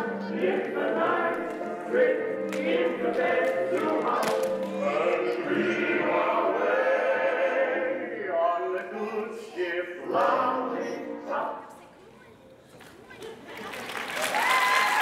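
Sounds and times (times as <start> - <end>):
backing music: 0.0 - 9.0, 9.7 - 11.7
group of voices singing: 0.0 - 11.6.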